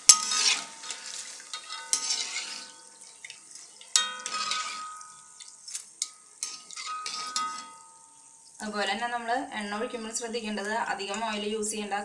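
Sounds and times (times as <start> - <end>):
oil sizzling and dripping: 0.0 - 8.6.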